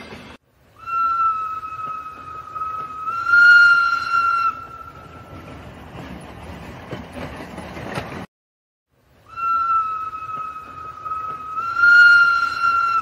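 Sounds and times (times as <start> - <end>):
toy train whistle tone: 0.8 - 4.9, 9.3 - 13.0.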